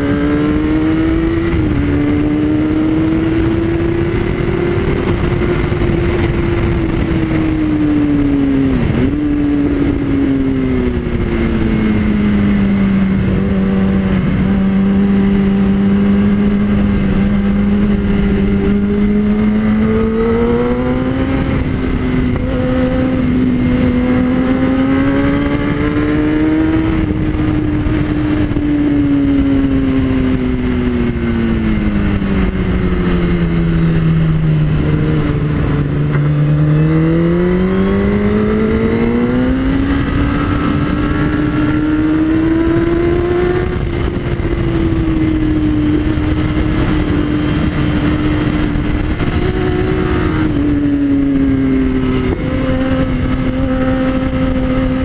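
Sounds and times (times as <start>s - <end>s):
motorcycle engine at speed: 0.0s - 55.0s
wind rush over microphone: 0.0s - 55.0s.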